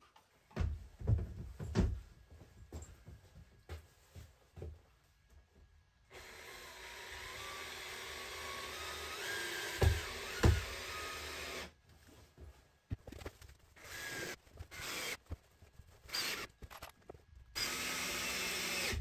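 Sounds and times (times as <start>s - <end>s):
cordless drill running: 6.1s - 11.7s, 13.8s - 15.2s, 16.1s - 16.5s, 17.6s - 19.0s.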